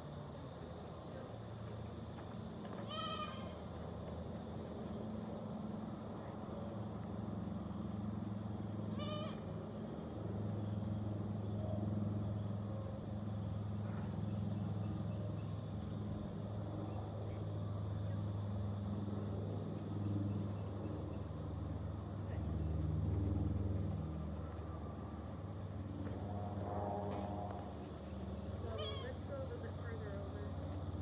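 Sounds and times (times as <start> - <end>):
steady low hum: 0.0 - 31.0
goat bleating: 2.9 - 3.6, 8.9 - 9.4.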